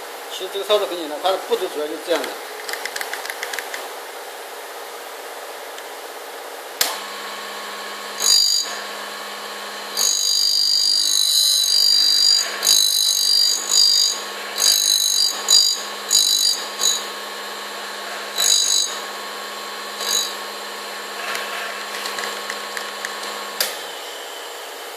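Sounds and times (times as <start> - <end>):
grinder motor switch click: 6.8 - 7.1, 21.3 - 23.9
grinder motor humming: 6.8 - 24.9
high-pitched grinding bursts: 7.6 - 24.3.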